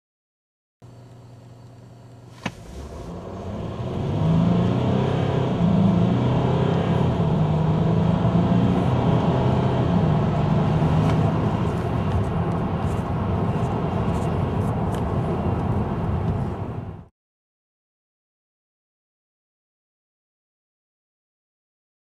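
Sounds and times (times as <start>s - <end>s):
diesel engine accelerating hard: 2.5s - 17.1s.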